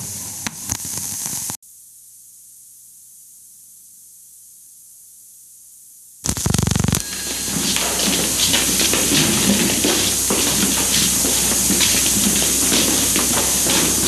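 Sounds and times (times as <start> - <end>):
film soundtrack hiss and crackle: 0.0 - 1.6, 6.2 - 14.0
fast buzzing run of clicks: 6.2 - 13.9.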